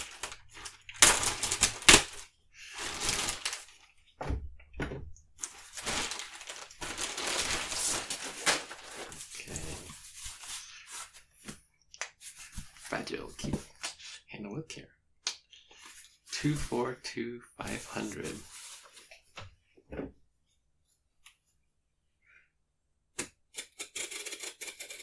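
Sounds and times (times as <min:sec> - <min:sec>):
padded mailer tearing: 0:00.0 - 0:03.7, 0:05.5 - 0:09.4
packaging crinkling: 0:00.0 - 0:03.9, 0:05.4 - 0:11.2.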